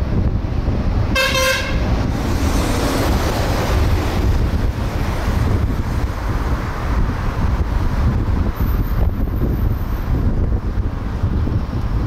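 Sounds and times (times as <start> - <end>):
car road noise: 0.0 - 12.0
wind rumble on microphone: 0.0 - 12.0
vehicle horn toot: 1.2 - 1.9.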